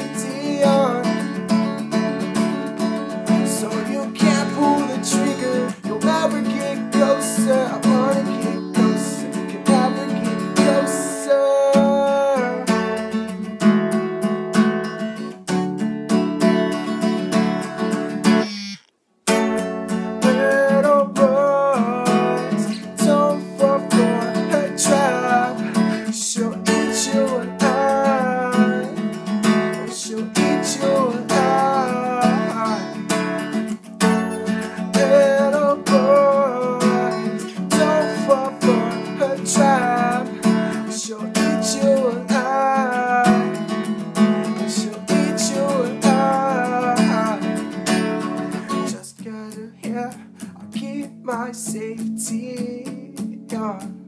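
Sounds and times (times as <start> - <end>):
acoustic guitar strumming: 0.0 - 54.0
wavering melody line: 18.2 - 18.9.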